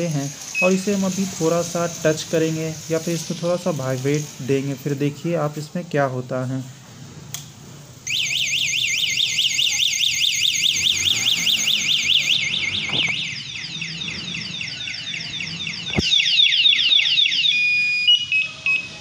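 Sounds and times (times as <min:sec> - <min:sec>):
bicycle alarm siren warbling: 0:00.0 - 0:05.7, 0:08.0 - 0:19.0
quick falling alarm chirps: 0:08.1 - 0:19.0.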